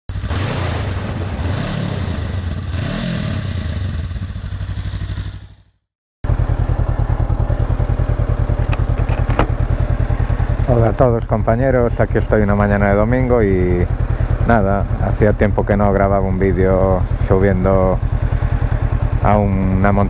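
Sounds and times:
motorcycle engine revving: 0:00.1 - 0:20.0.

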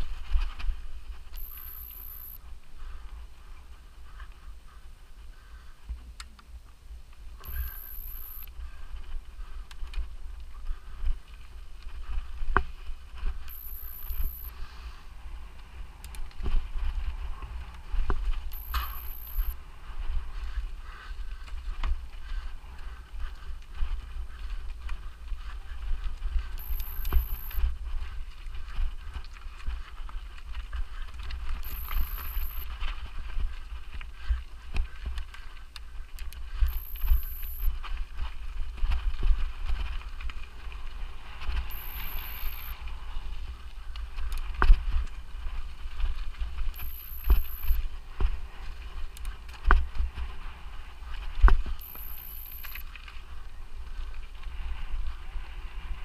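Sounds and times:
wind rumble on microphone: 0:00.0 - 0:01.4, 0:14.1 - 0:18.6, 0:19.4 - 0:51.8, 0:52.7 - 0:56.0
faint high-pitched tone: 0:01.3 - 0:02.5, 0:07.4 - 0:08.5, 0:13.5 - 0:14.6, 0:18.5 - 0:19.6, 0:26.6 - 0:27.7, 0:31.6 - 0:32.7, 0:36.6 - 0:37.8, 0:41.7 - 0:42.8, 0:46.7 - 0:47.8, 0:51.8 - 0:52.9.

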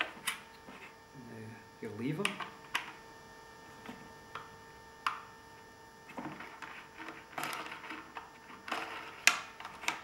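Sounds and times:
clicks and scrapes of parts: 0:06.1 - 0:10.0.

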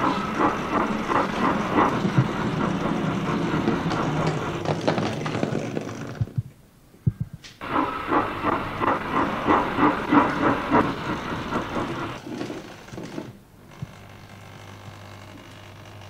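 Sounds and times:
model train clattering on track: 0:00.0 - 0:05.8, 0:07.6 - 0:13.3.

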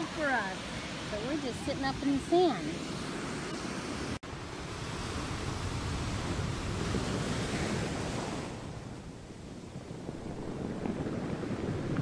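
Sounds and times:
ocean surf washing onto beach: 0:00.0 - 0:12.0
wind buffeting microphone: 0:04.4 - 0:12.0.

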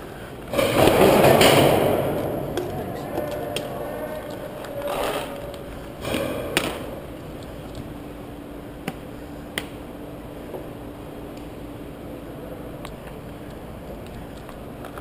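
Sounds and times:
gear rubbing against microphone: 0:01.8 - 0:07.2.

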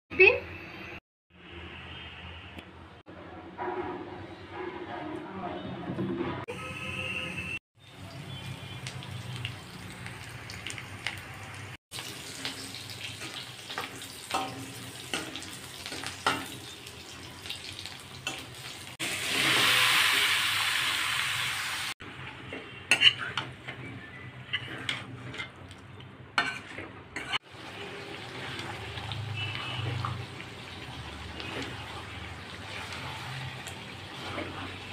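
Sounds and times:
onions sizzling in oil: 0:07.8 - 0:22.0, 0:27.2 - 0:34.9
spatula scraping pan: 0:22.3 - 0:30.3, 0:30.9 - 0:34.9.

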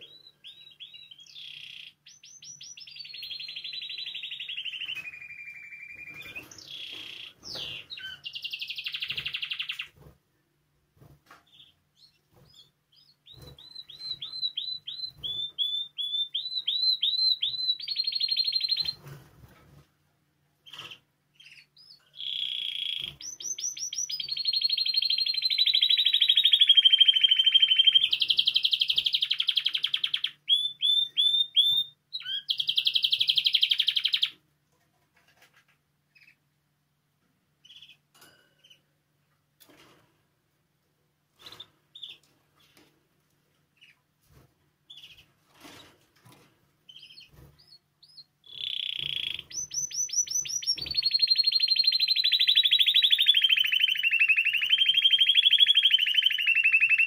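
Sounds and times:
canary singing trills: 0:00.0 - 0:10.0, 0:11.5 - 0:19.1, 0:20.6 - 0:34.4, 0:37.6 - 0:38.9, 0:44.9 - 0:45.9, 0:46.9 - 0:57.0.

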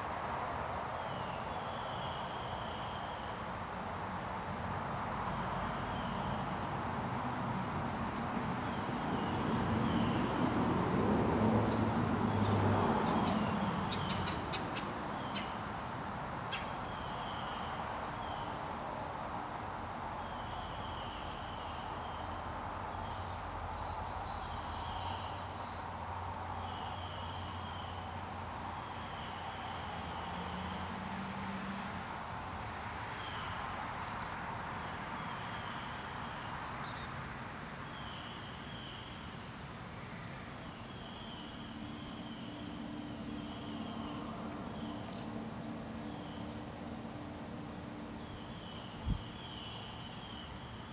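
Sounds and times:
distant road traffic hum: 0:00.0 - 0:50.9
distant vehicle passing: 0:29.1 - 0:32.1.

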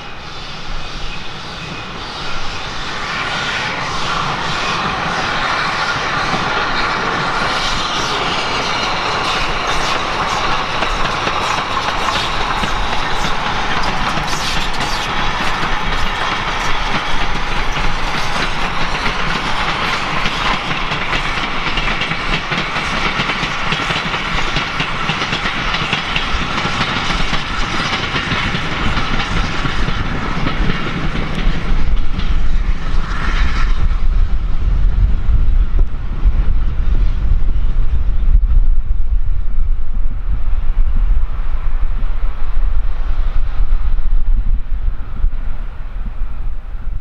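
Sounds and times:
train wheels clickety-clack: 0:00.3 - 0:38.4
low rumble: 0:31.4 - 0:47.0.

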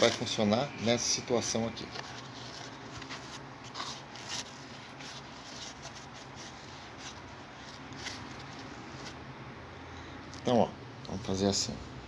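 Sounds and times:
plastic rustling: 0:00.0 - 0:00.5, 0:01.4 - 0:09.2.

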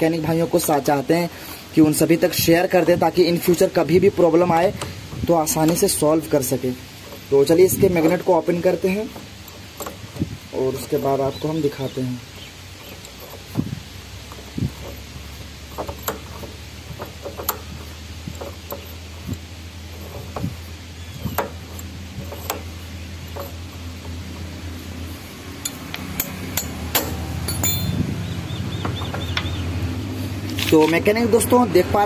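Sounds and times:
steady low hum: 0:01.3 - 0:30.6
metallic clinks and knocks: 0:12.3 - 0:24.6, 0:25.5 - 0:28.2.

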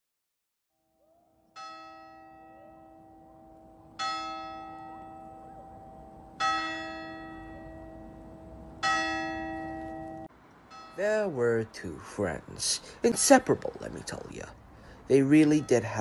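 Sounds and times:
large bell tolling: 0:01.6 - 0:11.4.

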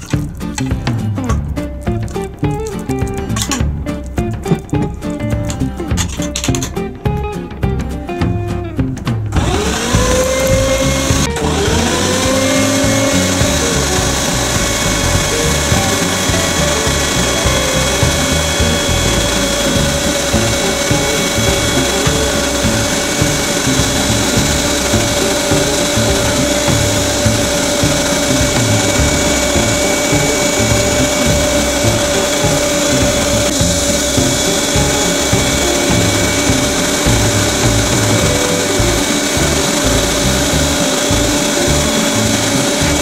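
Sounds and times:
electric meat grinder whining: 0:09.4 - 0:43.0.

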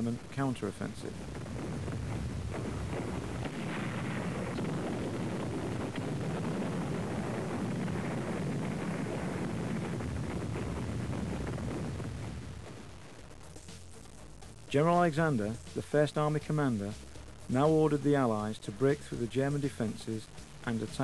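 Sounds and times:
dense rumbling battle noise: 0:00.0 - 0:13.4
faint crackles: 0:00.0 - 0:21.0.

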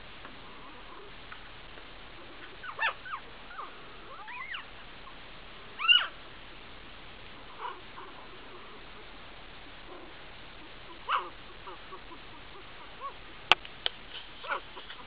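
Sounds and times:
puppies whimpering: 0:02.2 - 0:05.2, 0:05.8 - 0:06.2, 0:09.9 - 0:13.4.

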